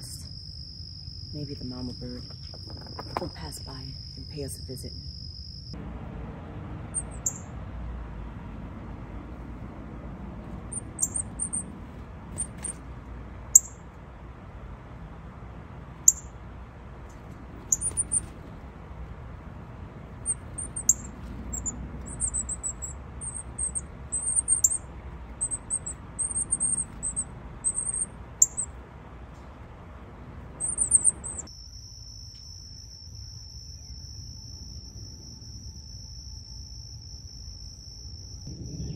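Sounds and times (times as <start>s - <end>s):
nestlings cheeping: 0.0s - 5.7s, 6.8s - 7.6s, 10.4s - 13.9s, 15.9s - 16.4s, 17.0s - 31.5s
insect trill: 0.0s - 5.8s, 6.9s - 7.5s, 10.4s - 12.8s, 13.4s - 13.9s, 15.9s - 16.4s, 17.1s - 29.5s, 30.4s - 38.9s
low background rumble: 0.0s - 31.5s, 34.0s - 38.9s.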